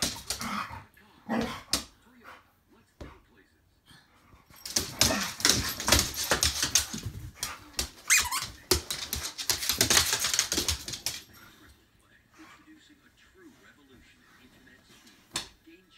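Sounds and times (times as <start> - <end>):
sliding squeaks: 8.1 - 8.6.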